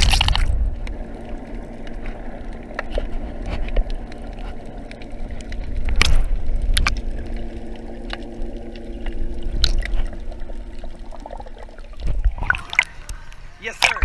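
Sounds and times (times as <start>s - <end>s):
muffled underwater rumble: 0.0s - 14.0s.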